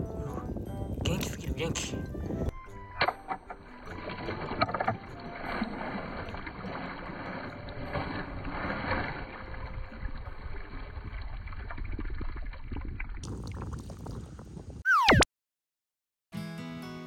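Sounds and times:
net splashing through stream water: 3.8 - 10.0.

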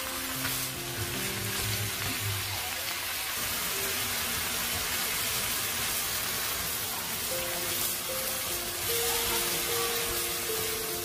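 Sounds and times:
soft background music: 0.0 - 4.5, 7.2 - 11.0
food sizzling in a hot pan: 0.0 - 11.0.

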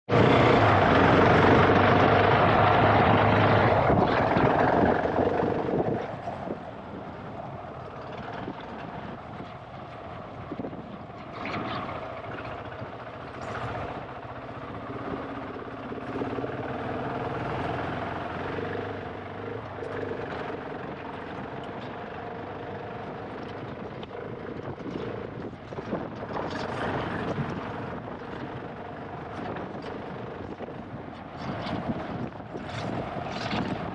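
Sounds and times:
motorcycle engine revving: 0.1 - 6.6, 11.2 - 29.8.

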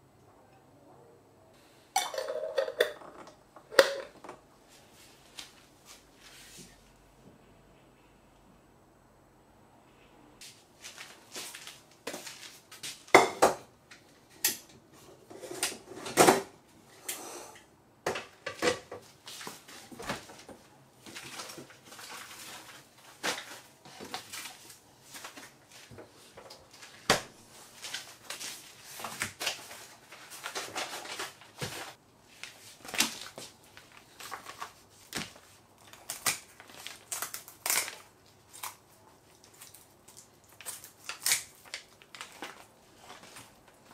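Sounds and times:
metal pots and utensils clinking: 2.0 - 4.2.

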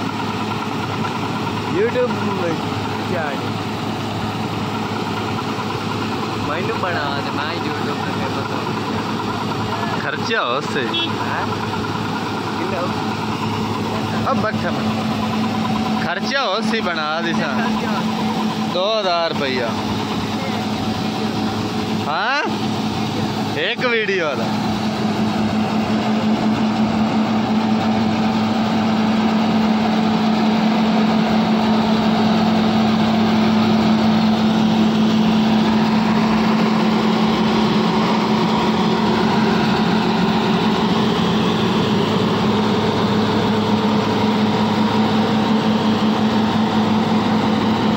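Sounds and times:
combine harvester droning: 0.0 - 47.9.

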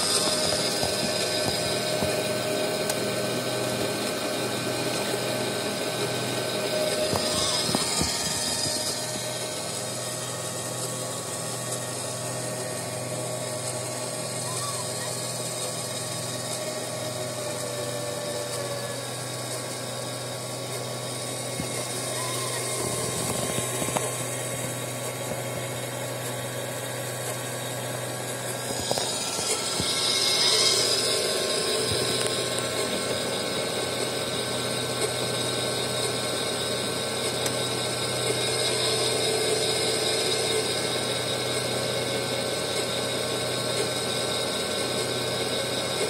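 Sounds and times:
low drone: 0.0 - 34.6
filament extruder whirring: 0.0 - 46.0.

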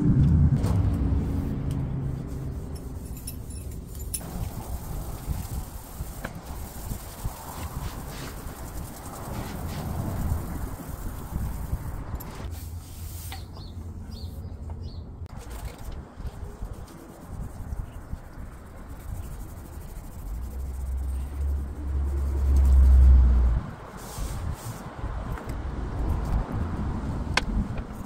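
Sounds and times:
low rumble: 0.0 - 12.5
bird chirps: 13.4 - 15.1.

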